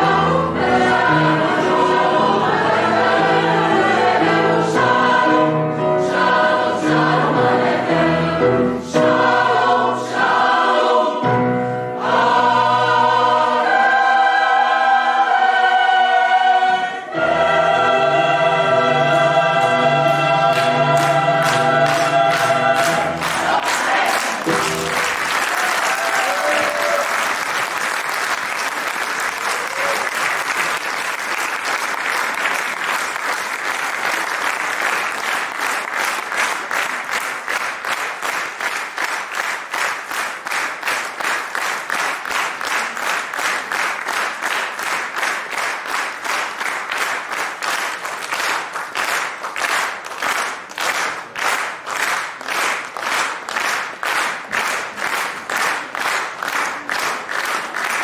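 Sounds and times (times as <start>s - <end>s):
choir final chord: 0.0s - 25.2s
audience applause: 20.5s - 58.0s.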